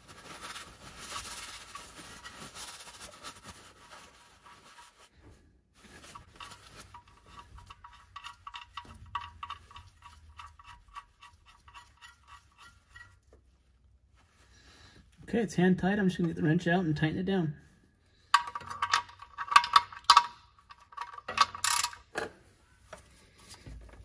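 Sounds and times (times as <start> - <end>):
paper towel rustling: 0.0 - 7.5
bolt clicking and rubbing: 6.2 - 13.3, 18.3 - 22.3.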